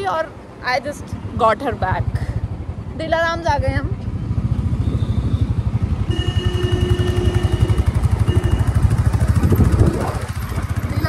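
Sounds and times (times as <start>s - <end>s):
motorcycle engine running: 2.7s - 11.0s.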